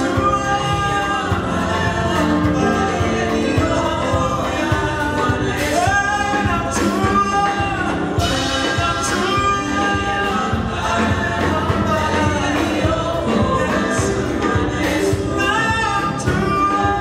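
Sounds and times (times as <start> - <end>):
drum kit beat: 0.0 - 17.0
group singing gospel song: 0.0 - 17.0.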